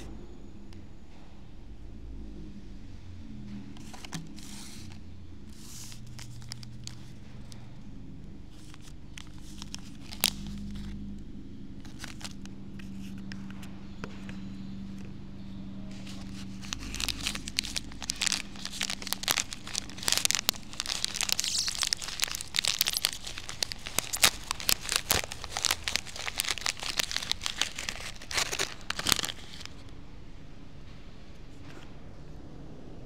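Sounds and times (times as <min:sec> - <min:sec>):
plastic snack packet crinkling: 0:03.8 - 0:07.7, 0:08.5 - 0:11.2, 0:11.8 - 0:13.3, 0:15.9 - 0:29.9.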